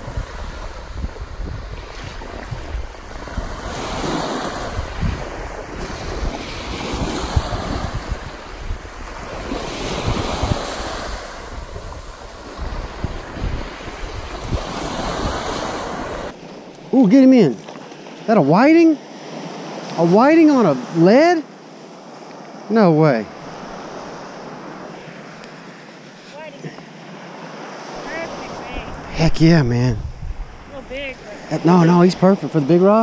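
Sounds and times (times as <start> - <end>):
wind buffeting microphone: 0.0 - 16.4, 28.0 - 33.0
surf washing up a sandy beach: 0.0 - 33.0.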